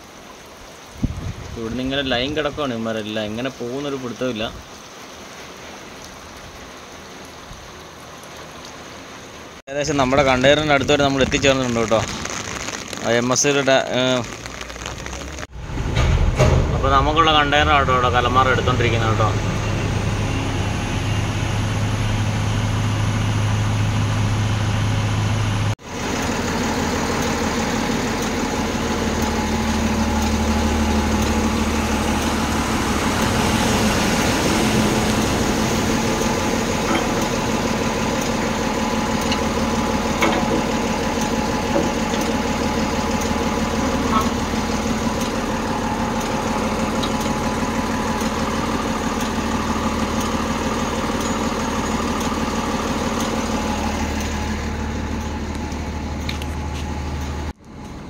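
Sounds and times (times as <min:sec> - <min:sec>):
heavy diesel engines running: 0:14.0 - 0:58.0.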